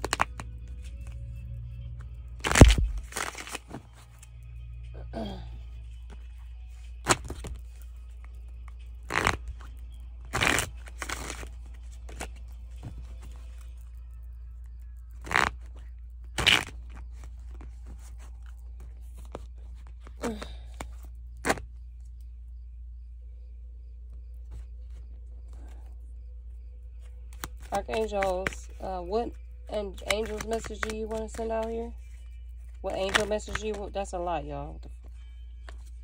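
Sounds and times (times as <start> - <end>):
cards rustling and slapping: 0.0 - 1.2, 2.3 - 4.3, 6.1 - 14.0, 15.0 - 21.7, 27.0 - 34.1, 34.9 - 36.0
steady low hum: 0.0 - 36.0.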